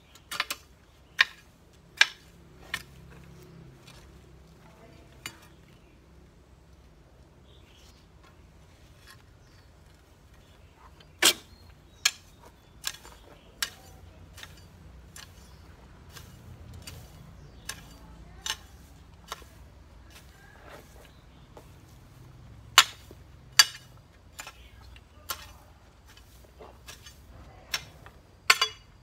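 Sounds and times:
hoe blade striking dry ground: 0:00.1 - 0:04.0, 0:04.8 - 0:05.6, 0:11.1 - 0:29.0.

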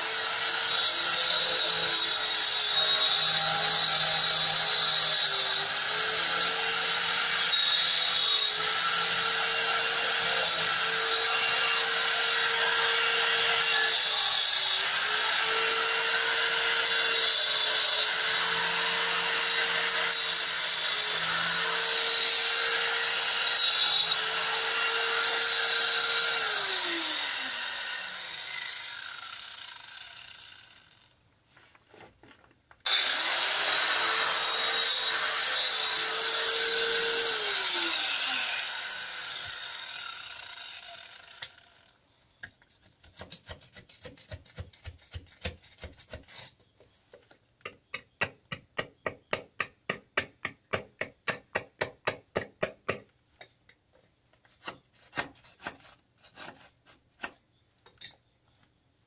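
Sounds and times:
angle grinder grinding: 0:00.0 - 0:31.0, 0:32.8 - 0:42.0.

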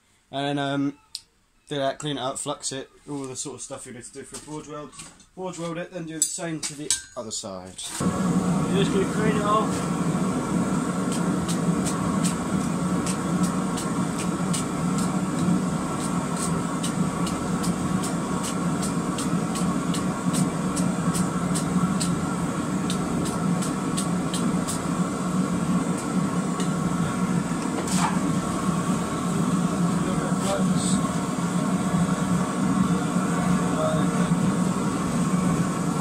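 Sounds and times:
forge roaring: 0:08.0 - 0:36.0.

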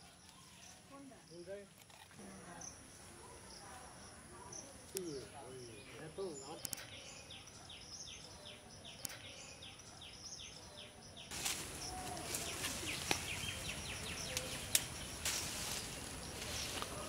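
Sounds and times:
birds chirping: 0:00.0 - 0:17.0
leafy branches rustling: 0:11.3 - 0:17.0.

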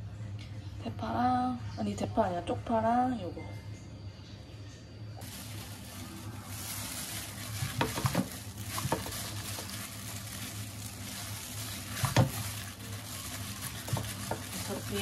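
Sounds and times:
steady hum and hiss: 0:00.0 - 0:15.0
wet squelching and mixing by hand: 0:05.2 - 0:15.0.

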